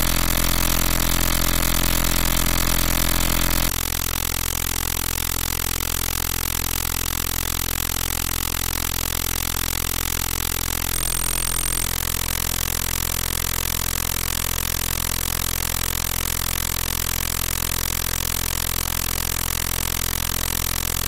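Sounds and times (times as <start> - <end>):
high-pitched steady tone: 0.0 - 3.7, 10.9 - 12.3.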